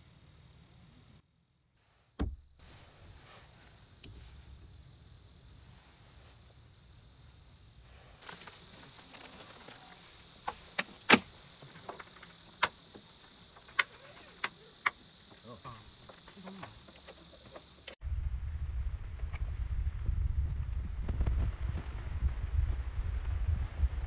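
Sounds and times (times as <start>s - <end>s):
insects chirring: 1.9s - 18.0s
wind rumble on microphone: 18.0s - 24.0s.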